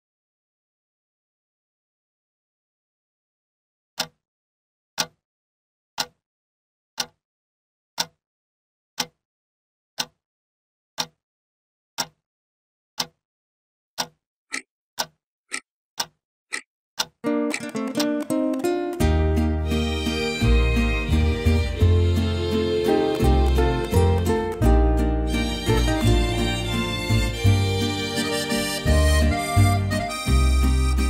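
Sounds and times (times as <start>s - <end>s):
clock ticking: 7.0s - 7.2s, 8.0s - 8.2s, 9.0s - 9.2s, 10.0s - 10.2s, 11.0s - 11.2s, 12.0s - 12.2s, 13.0s - 13.2s, 14.0s - 31.0s.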